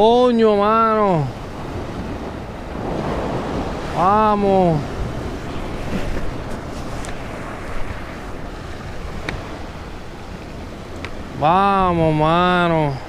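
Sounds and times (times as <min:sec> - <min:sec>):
sea surf washing against rocks: 0:00.0 - 0:13.0
wind buffeting microphone: 0:00.0 - 0:13.0
faint clicks: 0:10.4 - 0:11.2.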